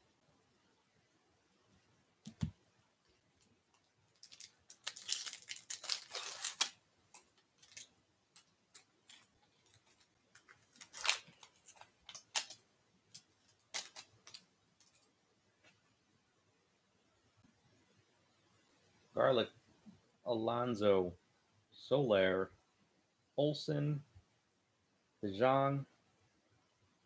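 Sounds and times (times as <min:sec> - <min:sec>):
wrapper crinkling: 0:04.1 - 0:15.1
foil wrapper tearing: 0:04.2 - 0:07.9, 0:08.7 - 0:12.6, 0:13.6 - 0:14.4.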